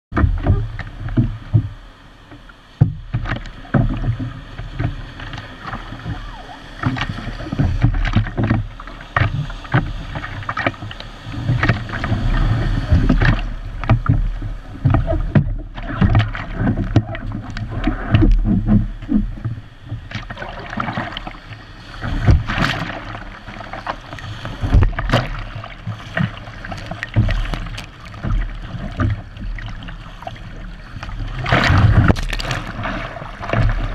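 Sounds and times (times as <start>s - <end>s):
splashes and knocks: 0.1s - 1.8s, 2.8s - 21.4s, 22.0s - 33.9s
water slapping against hull: 0.1s - 33.9s.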